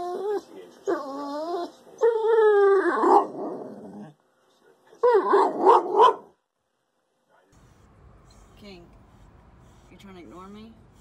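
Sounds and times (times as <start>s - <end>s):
dog howling: 0.0s - 4.0s.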